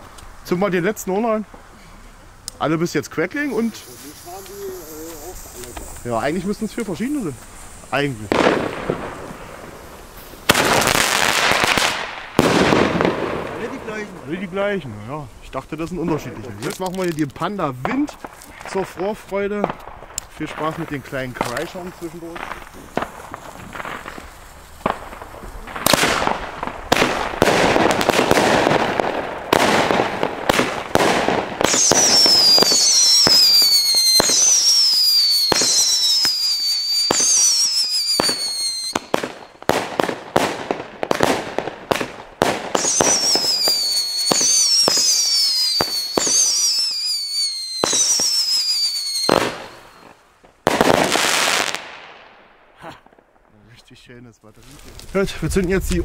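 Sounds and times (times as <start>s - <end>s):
firework bangs and cracks: 0.0s - 53.7s
firework screaming whistles: 3.3s - 14.2s, 30.6s - 39.6s, 42.7s - 50.2s.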